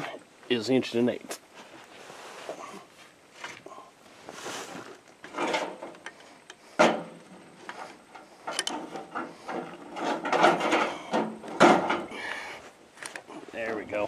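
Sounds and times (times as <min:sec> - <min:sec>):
metal clattering: 0:06.8 - 0:12.1
metal clinks and scrapes: 0:07.5 - 0:12.0.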